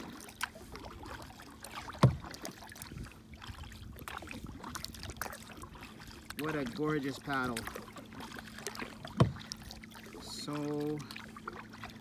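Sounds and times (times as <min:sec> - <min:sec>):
paddle strokes with splashes: 0:00.0 - 0:12.0.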